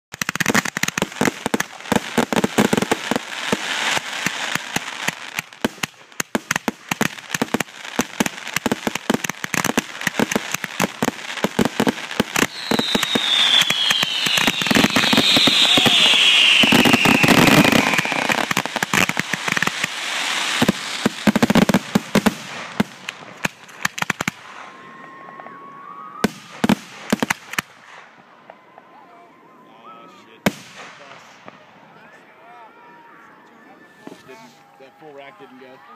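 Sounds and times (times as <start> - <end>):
fireworks bangs and crackling: 0.1 - 28.9, 30.4 - 32.0
high falling whistle: 12.4 - 18.6, 24.5 - 26.3.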